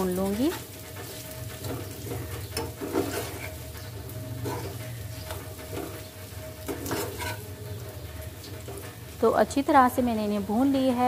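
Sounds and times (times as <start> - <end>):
metal spoon scraping a pan: 0.0 - 9.2
oil sizzling: 0.0 - 11.0.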